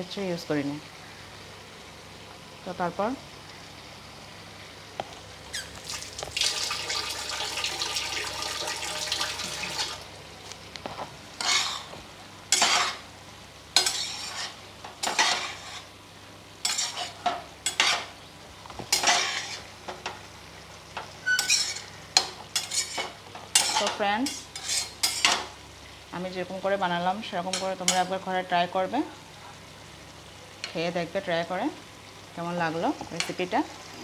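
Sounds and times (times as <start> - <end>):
curry sizzling in a pot: 0.0 - 34.0
spoon scraping a metal pot: 11.4 - 11.9, 13.8 - 15.9, 16.6 - 18.1, 18.9 - 19.6, 21.2 - 21.9, 22.6 - 25.4.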